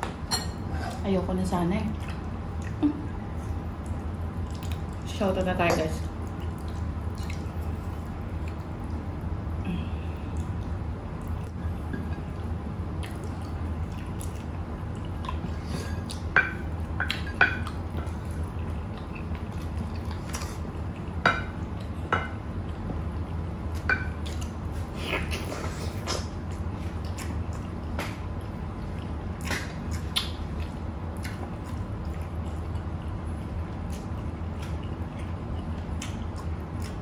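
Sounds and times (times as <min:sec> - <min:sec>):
steady low hum: 0:00.0 - 0:37.0
wet chewing and lip smacks: 0:01.9 - 0:05.1, 0:06.2 - 0:09.1, 0:12.9 - 0:16.3, 0:17.0 - 0:22.0, 0:25.3 - 0:37.0.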